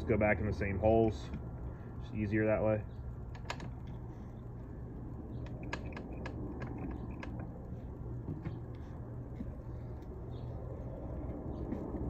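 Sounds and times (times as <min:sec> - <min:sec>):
steady low hum: 0:00.0 - 0:12.0
metallic clicks and taps: 0:05.4 - 0:07.5.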